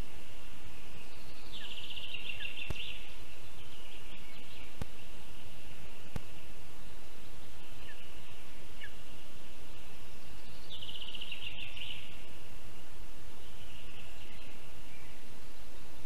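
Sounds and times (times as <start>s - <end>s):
forest hiss: 0.0s - 16.0s
small birds chirping: 0.0s - 16.0s.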